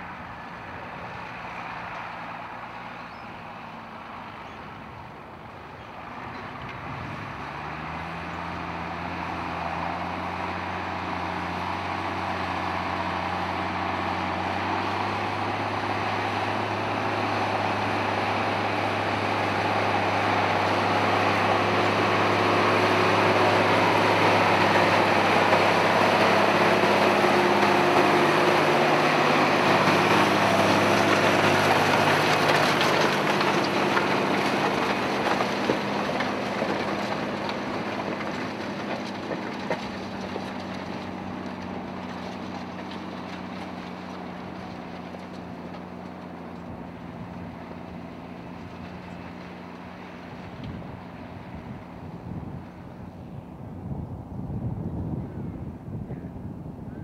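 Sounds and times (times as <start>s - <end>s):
tractor engine pulling plough: 0.0s - 56.0s.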